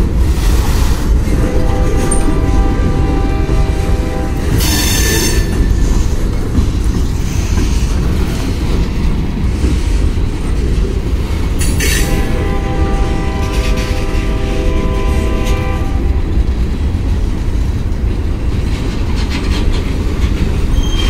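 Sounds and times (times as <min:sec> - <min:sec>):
freight train rumbling past: 0:00.0 - 0:21.0
train wheel squeal: 0:04.5 - 0:06.2, 0:11.6 - 0:12.3, 0:19.2 - 0:21.0.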